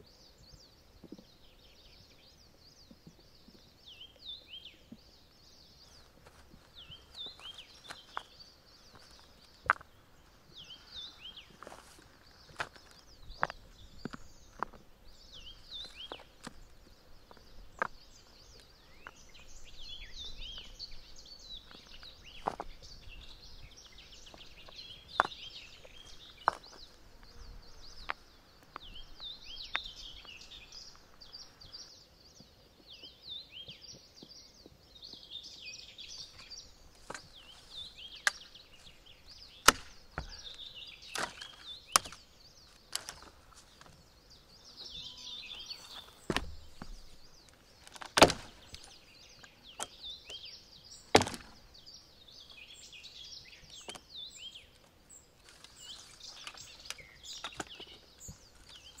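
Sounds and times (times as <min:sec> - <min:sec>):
birds chirping and singing: 0:00.0 - 0:59.0
chopping knocks on wood: 0:39.6 - 0:40.4, 0:46.3 - 0:46.9, 0:48.1 - 0:48.6, 0:51.1 - 0:51.6.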